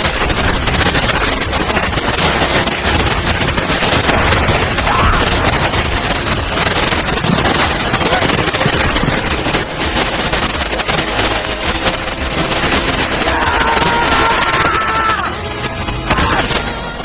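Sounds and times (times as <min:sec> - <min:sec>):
blizzard wind rushing: 0:00.0 - 0:17.0.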